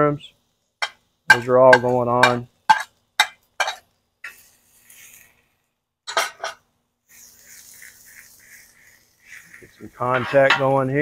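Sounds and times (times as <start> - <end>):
utensil clattering on steel griddle: 0.8 - 4.5, 6.1 - 6.6, 7.2 - 11.0
vegetables sizzling on griddle: 0.8 - 5.4, 6.1 - 11.0.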